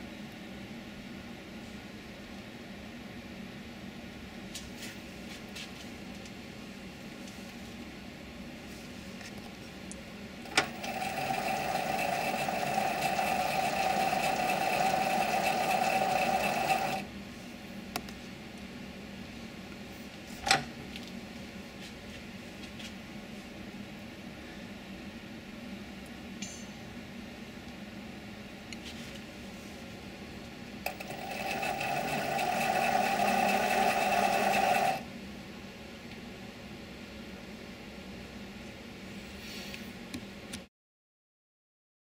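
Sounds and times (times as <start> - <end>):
two-tone machine whine: 10.4 - 17.1, 30.8 - 35.0
lathe running with a hum: 10.5 - 17.1, 30.9 - 35.0.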